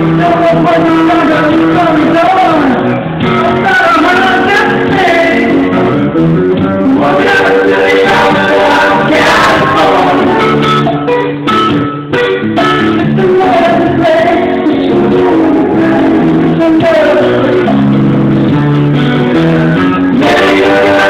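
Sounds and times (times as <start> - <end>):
man singing into microphone: 0.0 - 6.0, 6.6 - 10.6, 13.0 - 18.2, 20.1 - 21.0
guitar accompaniment: 0.0 - 21.0.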